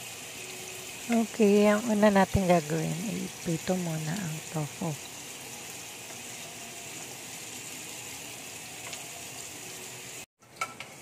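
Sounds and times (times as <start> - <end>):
tofu sizzling in oil: 0.0 - 11.0.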